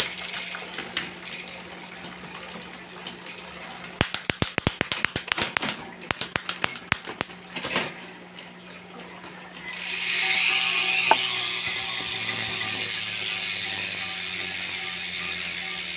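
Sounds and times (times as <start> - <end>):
bicycle freehub ratchet buzzing: 9.7 - 15.9.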